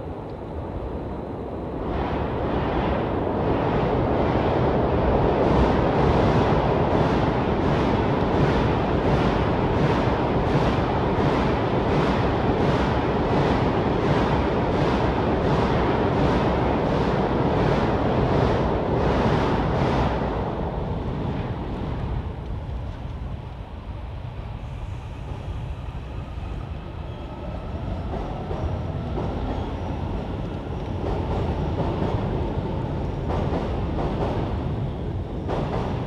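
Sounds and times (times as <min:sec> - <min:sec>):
train wheels rumbling on rails: 0:00.0 - 0:36.0
rail clacks: 0:27.5 - 0:36.0.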